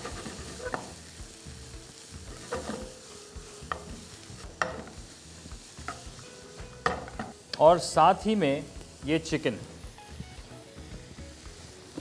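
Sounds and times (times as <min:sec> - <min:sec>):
spatula scraping a pan: 0:00.0 - 0:01.0, 0:02.1 - 0:05.1
vegetables sizzling in a pan: 0:00.0 - 0:12.0.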